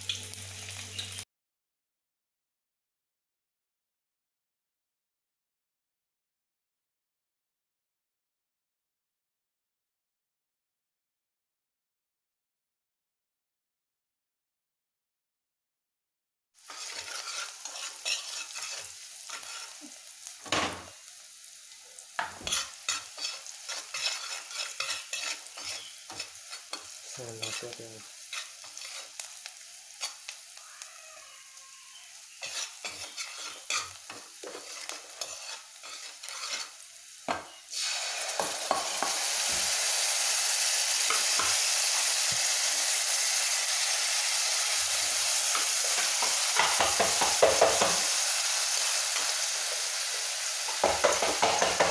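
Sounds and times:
food cooking in a pan: 0.0 - 1.2, 16.6 - 51.9
loud steady sizzle: 0.0 - 1.2, 16.6 - 51.9
utensil scraping a pan: 16.6 - 20.9, 22.2 - 29.4, 30.0 - 30.4, 32.0 - 36.8, 45.4 - 48.2.

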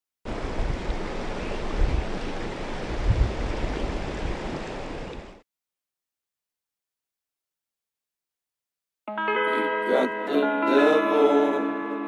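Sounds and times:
wind rushing: 0.3 - 5.0
wind gusts buffeting microphone: 0.3 - 5.4.

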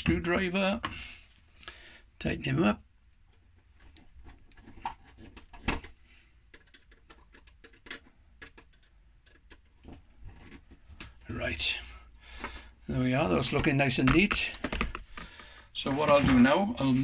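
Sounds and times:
screwdriver clicking and scraping: 6.5 - 9.8.

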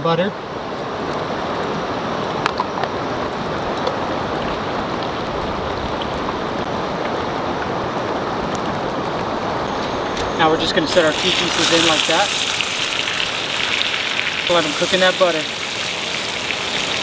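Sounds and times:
butter sizzling in skillet: 10.8 - 17.0.

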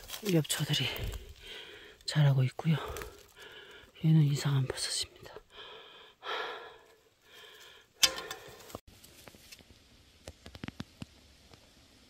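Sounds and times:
person breathing: 0.8 - 2.1, 2.8 - 4.0, 5.1 - 8.8.

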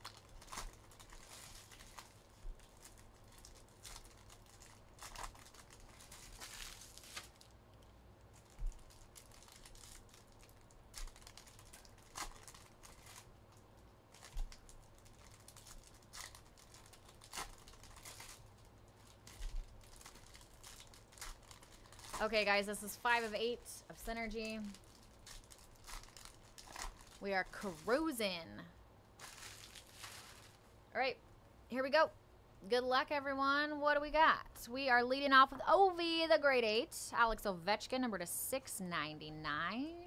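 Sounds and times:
wrappers crinkling and tearing: 0.0 - 28.2, 29.1 - 30.7.

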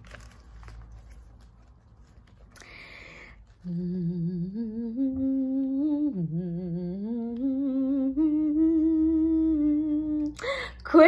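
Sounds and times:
woman humming: 3.6 - 10.5.

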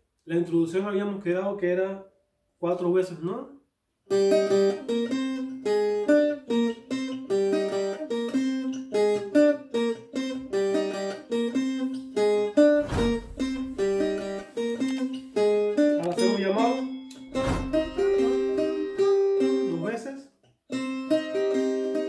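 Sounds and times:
plucked guitar-like tres: 4.1 - 20.1, 20.7 - 22.0.

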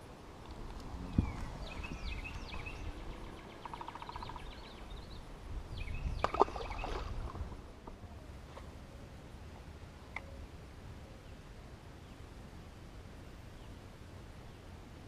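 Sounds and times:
low wind rumble: 0.0 - 15.0
birds chirping: 0.8 - 8.3
bird trill: 1.2 - 5.2.

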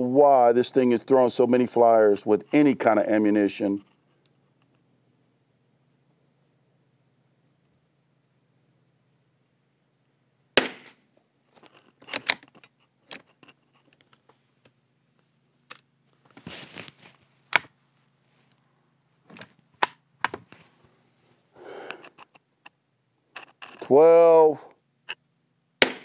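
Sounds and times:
rifle shot: 10.6 - 11.0, 25.8 - 26.0.

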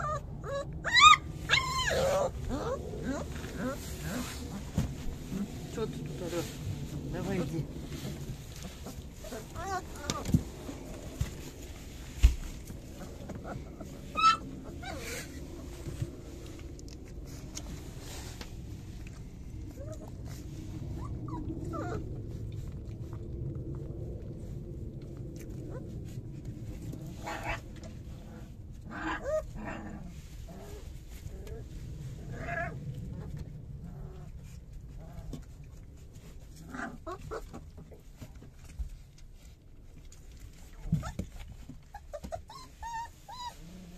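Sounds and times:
puppies squeaking and whimpering: 0.0 - 5.5, 8.5 - 10.4, 13.0 - 15.4, 21.0 - 22.1, 29.0 - 29.6, 40.9 - 43.9
puppy whine: 0.0 - 6.5, 8.3 - 23.3, 25.4 - 35.8, 36.4 - 38.3, 40.6 - 43.9
low rustling: 1.2 - 43.9.

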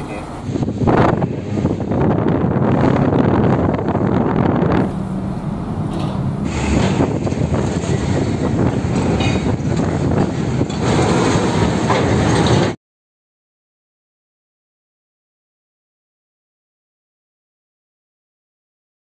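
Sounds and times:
diesel truck engine running: 0.0 - 12.8
wheels clattering over steel plates: 5.8 - 12.8.

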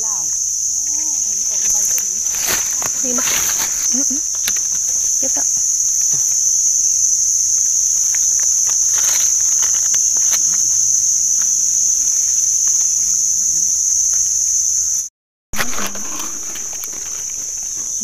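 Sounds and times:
high-pitched insect chorus: 0.0 - 18.0.

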